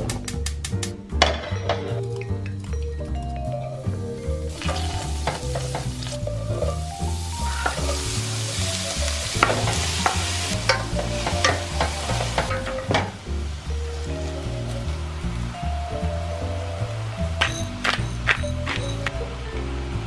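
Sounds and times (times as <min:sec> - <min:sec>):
background music with bass line: 0:00.0 - 0:20.0
vegetables sizzling in oil: 0:03.8 - 0:18.4
spoon scraping and tapping pan: 0:04.6 - 0:06.8.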